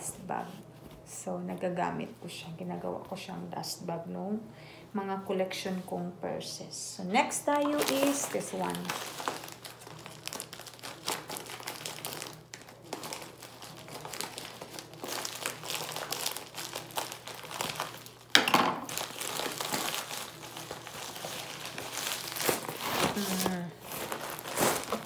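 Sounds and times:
plastic crinkling and rustling: 7.2s - 25.0s
scissors cutting plastic mailer: 18.9s - 25.0s.

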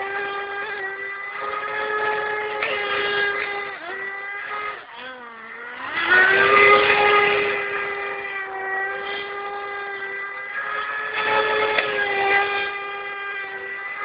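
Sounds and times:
two-stroke boat engine whining: 0.0s - 14.0s.

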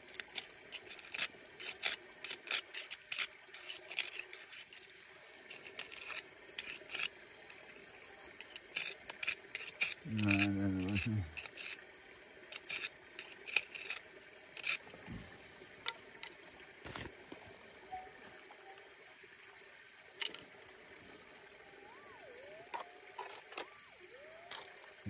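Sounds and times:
screwdriver scraping in rock crack: 0.0s - 11.8s, 12.5s - 14.8s
metal detector wavering tone: 17.8s - 18.9s, 21.2s - 25.0s.

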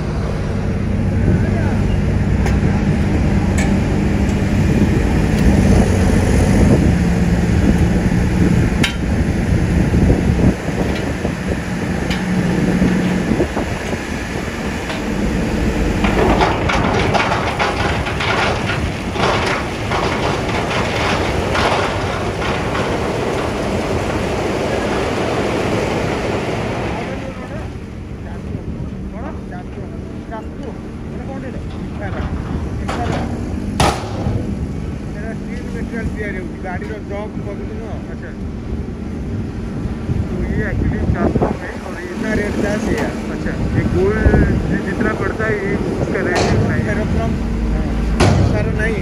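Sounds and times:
heavy engine humming: 0.0s - 49.0s
rocks clattering from dump truck: 14.7s - 24.8s, 31.5s - 34.7s, 46.1s - 47.3s, 48.1s - 49.0s
sharp knocks: 32.1s - 34.6s, 48.2s - 48.9s.

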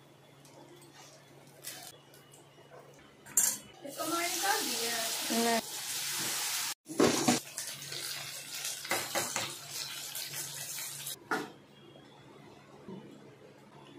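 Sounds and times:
vegetables deep-frying in oil: 3.8s - 11.2s.

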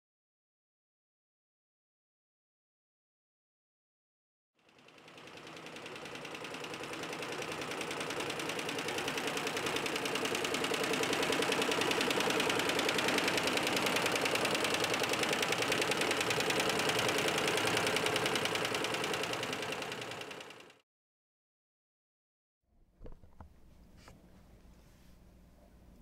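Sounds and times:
embroidery machine clattering: 5.6s - 20.6s.

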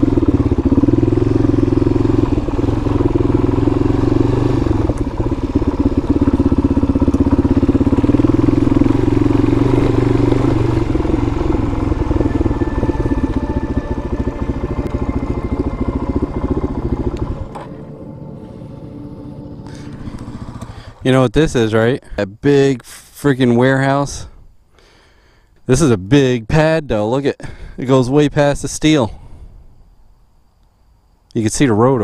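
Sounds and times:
dirt bike engine running: 0.0s - 21.9s.

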